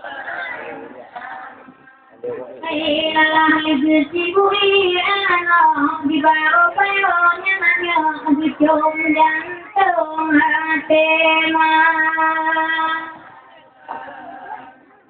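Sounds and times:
woman singing slow melody: 2.7 - 13.2.

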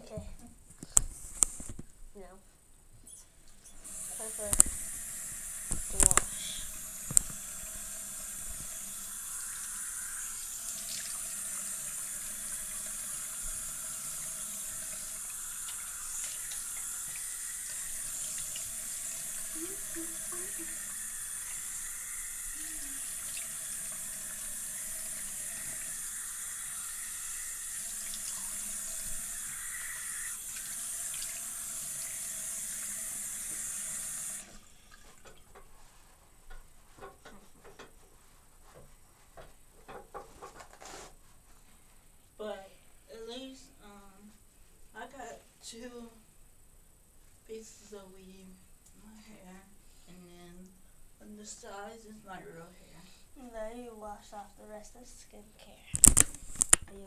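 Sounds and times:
faucet running into sink: 3.8 - 35.4
face being rinsed: 3.8 - 36.2.

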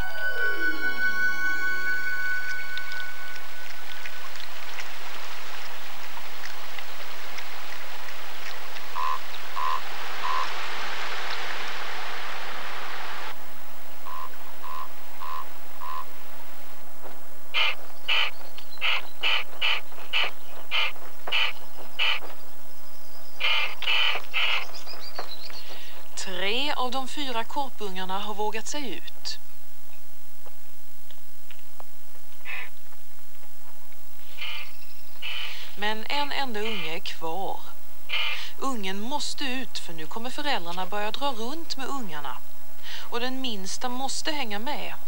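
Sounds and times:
rushing water: 0.0 - 13.3
high bird pips: 8.4 - 10.5, 17.6 - 22.3, 34.2 - 35.8, 38.1 - 38.5
ravens calling harshly: 17.5 - 22.3, 23.4 - 24.8, 32.4 - 32.8, 34.2 - 35.8, 36.6 - 37.0, 38.0 - 38.6.

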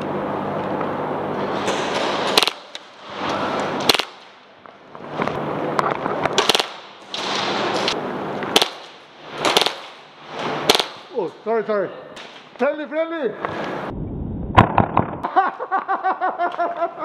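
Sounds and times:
airsoft automatic fire: 2.3 - 2.8, 3.8 - 4.3, 6.4 - 7.0, 8.5 - 10.0, 10.6 - 11.1
airsoft single shots: 2.3 - 2.8, 3.8 - 4.3, 6.4 - 7.4, 8.5 - 10.0, 10.6 - 11.1.

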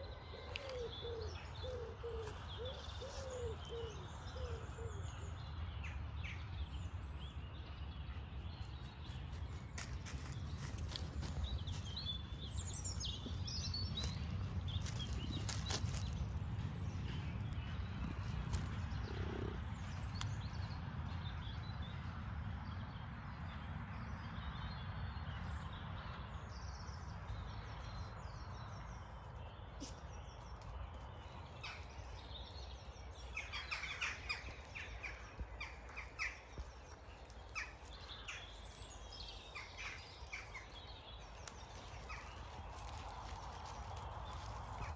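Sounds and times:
birds singing and calling: 0.0 - 22.1, 22.7 - 44.9.

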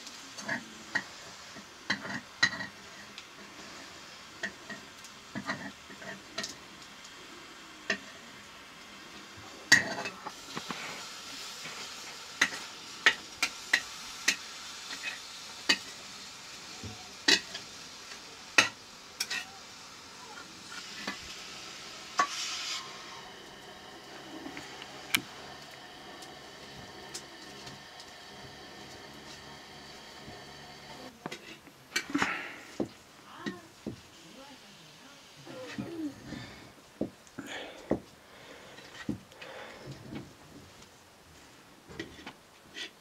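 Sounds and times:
sizzling hiss: 0.0 - 43.0
spatula scraping in pot: 20.4 - 32.1.

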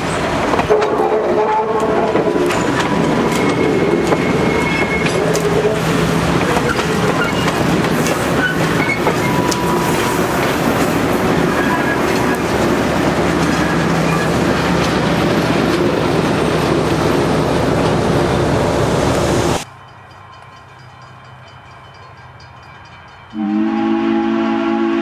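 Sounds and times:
train clattering over rail joints: 0.0 - 18.4.

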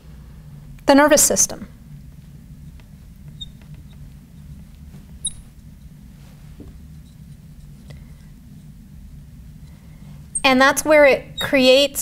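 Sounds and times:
steady low hum: 0.0 - 12.0
marker squeaks: 3.3 - 4.0, 5.2 - 5.9, 6.8 - 7.8, 11.4 - 11.6.

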